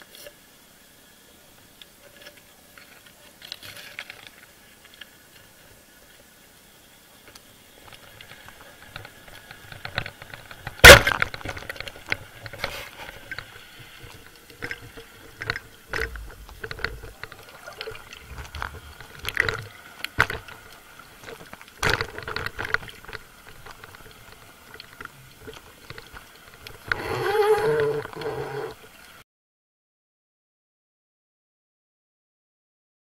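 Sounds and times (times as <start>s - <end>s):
faint watery hiss: 0.0s - 10.8s, 11.7s - 29.2s
underwater clicks and knocks: 8.8s - 28.3s.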